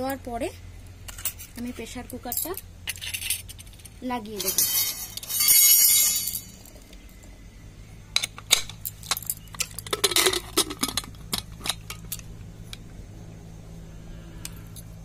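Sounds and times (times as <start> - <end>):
metal lid clicks and clanks: 8.2 - 12.2.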